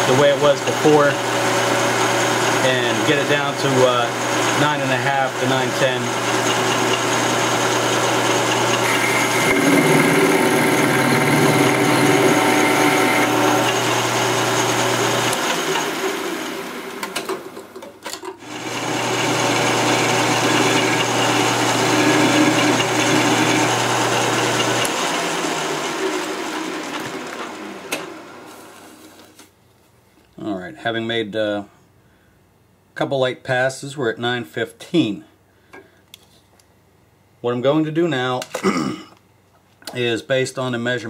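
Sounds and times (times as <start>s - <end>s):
lathe cutter hissing: 0.0s - 17.2s, 18.4s - 29.0s
lathe motor hum: 0.0s - 17.6s, 18.4s - 29.0s.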